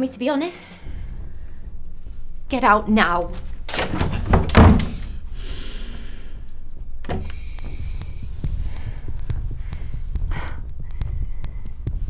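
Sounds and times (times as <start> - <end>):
low steady pulse: 0.7 - 12.0
faint regular ticks: 7.1 - 12.0.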